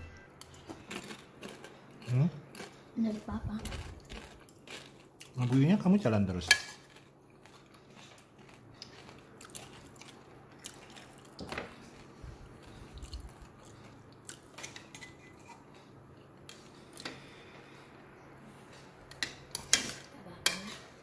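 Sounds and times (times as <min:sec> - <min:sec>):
person chewing: 0:00.1 - 0:05.5, 0:06.7 - 0:18.1.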